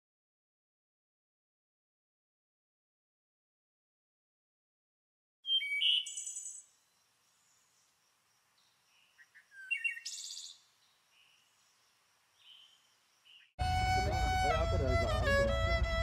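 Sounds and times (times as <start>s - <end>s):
birds chirping and trilling: 5.4s - 13.6s.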